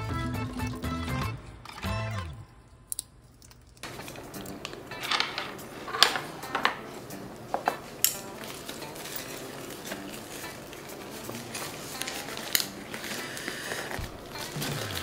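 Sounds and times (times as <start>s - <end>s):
tableware clinking on ceramic: 3.9s - 6.9s, 7.5s - 9.7s.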